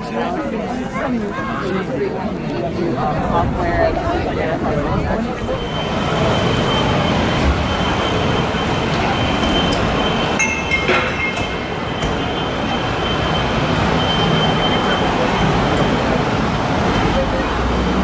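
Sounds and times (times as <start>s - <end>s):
cars passing by: 3.1s - 18.0s
steady high-pitched tone: 5.4s - 16.3s.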